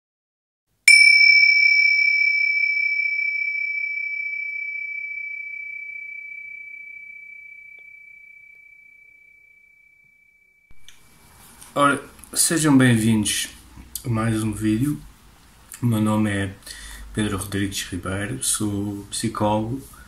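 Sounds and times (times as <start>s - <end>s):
high metallic chime ringing: 0.9s - 10.8s.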